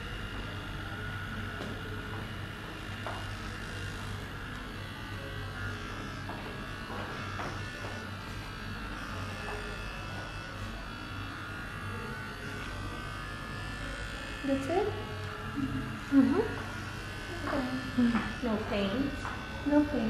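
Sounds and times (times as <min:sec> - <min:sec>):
microneedling pen buzzing: 0:00.0 - 0:20.0.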